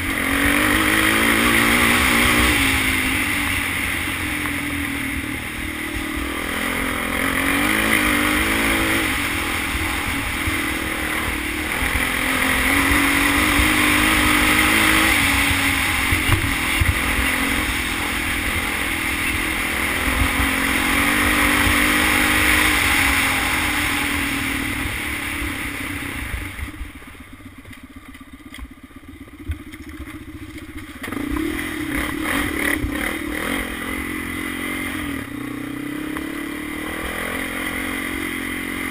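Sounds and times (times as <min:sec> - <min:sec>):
quad engine revving: 0:00.0 - 0:27.0, 0:29.3 - 0:38.9.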